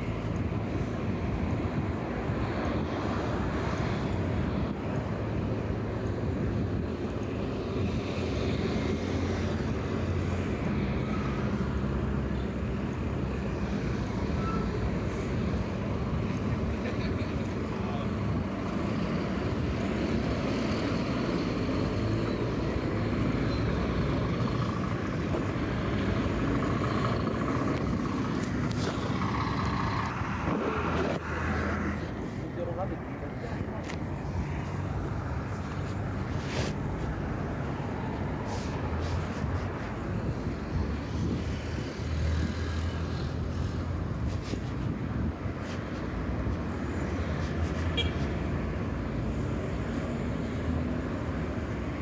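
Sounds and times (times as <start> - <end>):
trucks and cars passing: 0.0 - 52.0.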